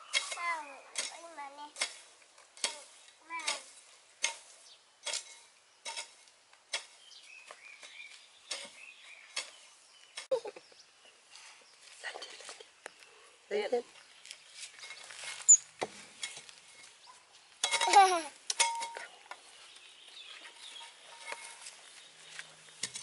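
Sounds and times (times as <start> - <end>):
hoe chopping dry soil: 0.0 - 10.3, 22.8 - 23.0.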